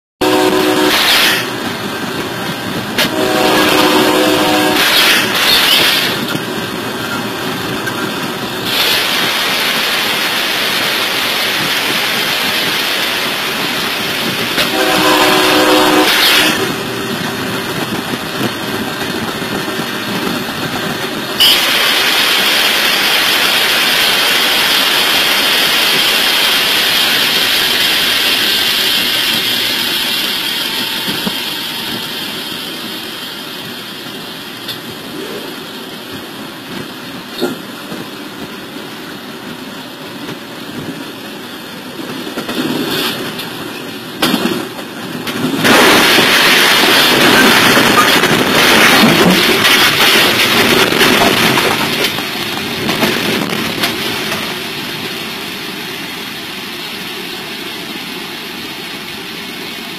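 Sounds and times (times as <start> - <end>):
train horn: 0.2 - 1.5, 3.0 - 5.4, 14.6 - 16.9
train rumble and hiss: 0.2 - 59.9
loud hissing rush: 0.7 - 59.9.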